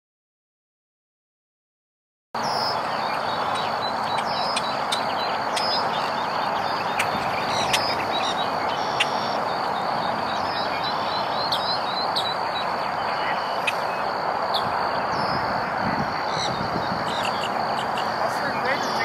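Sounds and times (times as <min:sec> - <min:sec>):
bird chirps and calls: 0:02.4 - 0:15.5, 0:16.2 - 0:19.0.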